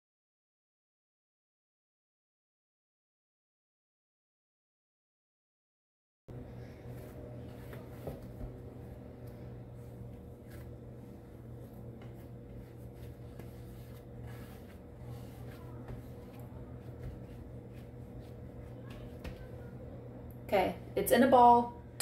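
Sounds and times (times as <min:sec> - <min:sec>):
steady low hum: 0:06.3 - 0:22.0
hands kneading dough on wood: 0:06.7 - 0:19.8.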